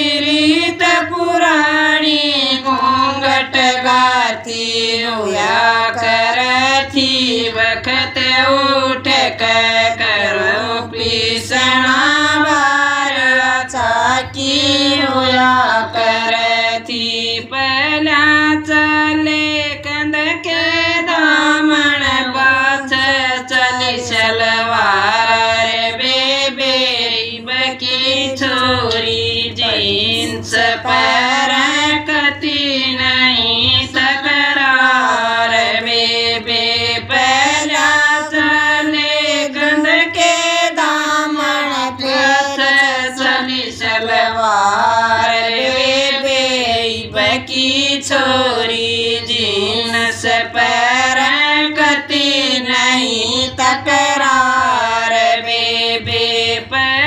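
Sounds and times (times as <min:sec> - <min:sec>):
woman singing folk song: 0:00.0 - 0:16.0, 0:27.4 - 0:35.8.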